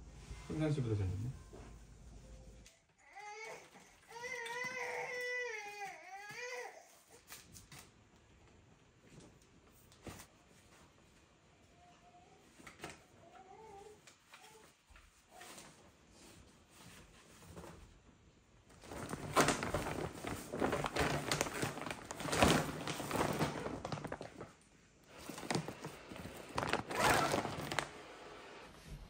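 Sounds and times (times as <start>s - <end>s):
plastic bag rustling and crinkling: 18.7s - 28.4s.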